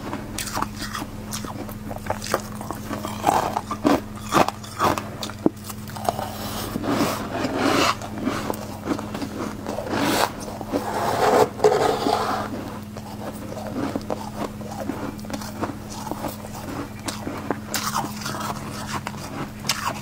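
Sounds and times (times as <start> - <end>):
metal spoon scraping frost: 6.0 - 20.0.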